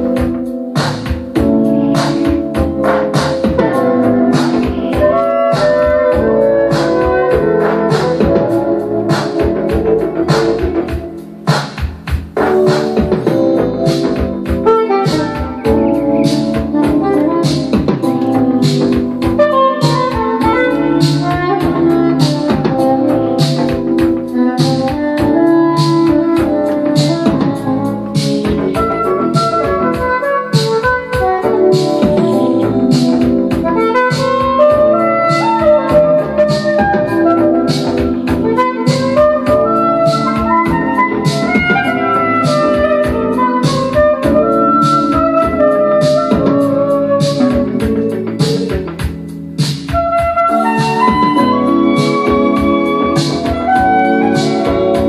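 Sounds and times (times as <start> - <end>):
instrumental music from vinyl record: 0.0 - 55.0.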